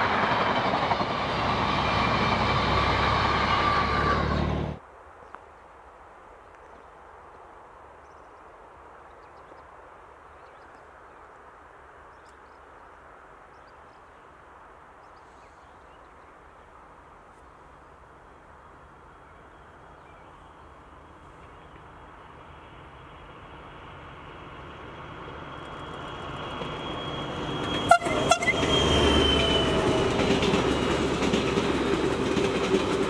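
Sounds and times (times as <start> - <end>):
diesel locomotive engine: 0.0 - 4.8, 18.3 - 33.0
faint hiss: 4.7 - 26.2.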